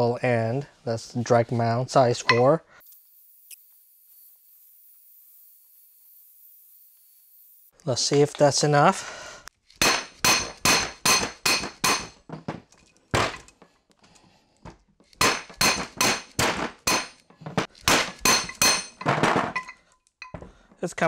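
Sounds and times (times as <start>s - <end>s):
mallet striking steel spindle: 9.8s - 12.2s, 15.2s - 17.2s, 17.9s - 19.1s.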